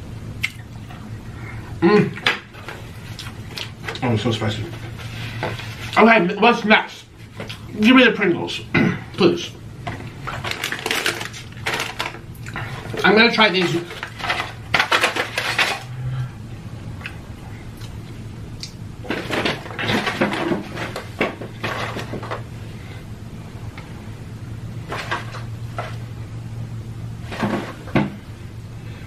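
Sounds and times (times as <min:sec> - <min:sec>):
low steady hum: 0:00.0 - 0:29.0
crisps crunched while chewing: 0:10.2 - 0:13.0.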